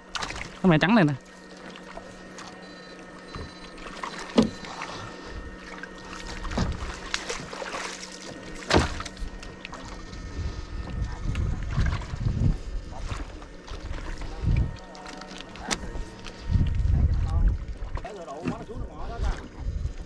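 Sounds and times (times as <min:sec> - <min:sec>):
steady hum: 0:00.0 - 0:20.0
water sloshing and splashing: 0:00.0 - 0:20.0
sharp splashes: 0:05.7 - 0:10.0.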